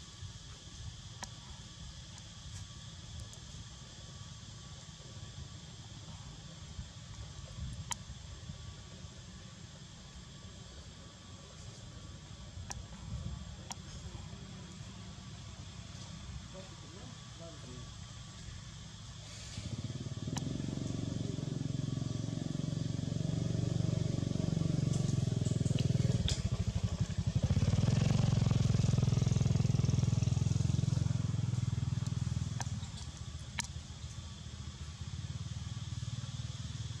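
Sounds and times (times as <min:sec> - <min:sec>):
vehicle engine rumbling: 0:11.4 - 0:37.0.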